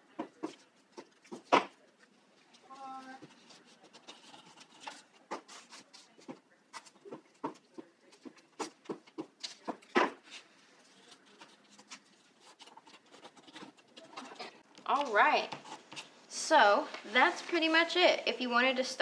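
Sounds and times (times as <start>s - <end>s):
paper rustling and crinkling: 0.4s - 8.8s, 9.4s - 16.1s.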